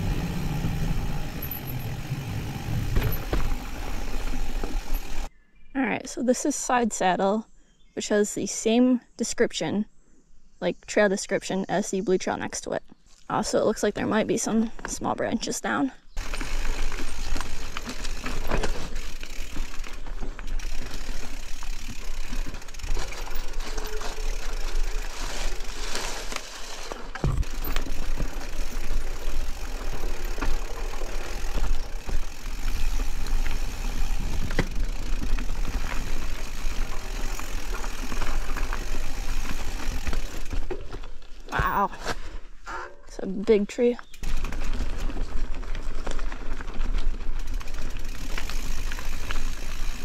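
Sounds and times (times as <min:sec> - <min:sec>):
bike chain and frame rattling: 0:00.0 - 0:05.3, 0:16.2 - 0:41.8, 0:44.1 - 0:50.0
bike tyres on dirt trail: 0:00.0 - 0:05.4, 0:13.0 - 0:42.9, 0:43.6 - 0:50.0.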